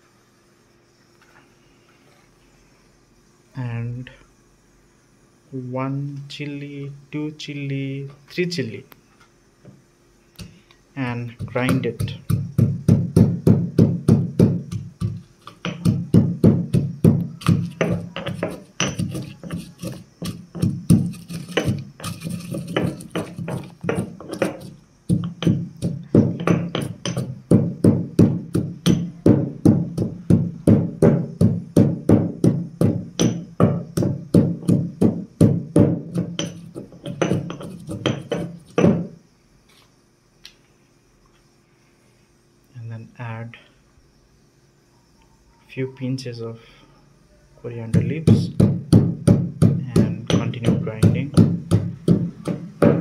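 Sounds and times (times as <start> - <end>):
stone pestle pounding in mortar: 11.3 - 39.2, 47.9 - 53.0.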